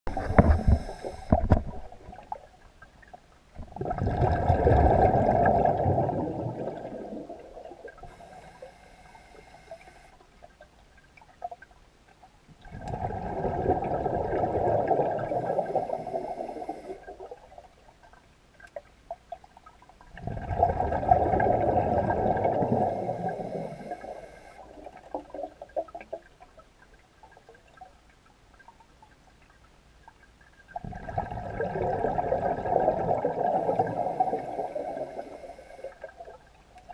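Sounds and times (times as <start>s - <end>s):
regulator hiss on inhale: 0.1s - 1.6s, 8.0s - 10.2s, 15.2s - 17.1s, 22.6s - 24.6s, 33.5s - 36.0s
exhaled air bubbles underwater: 0.1s - 11.7s, 12.6s - 18.2s, 19.6s - 28.0s, 30.6s - 36.9s.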